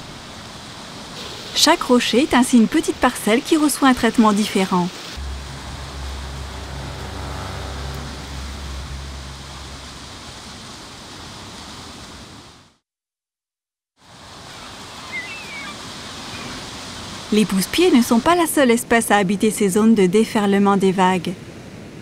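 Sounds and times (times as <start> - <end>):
low motor hum: 5.2 - 11.1.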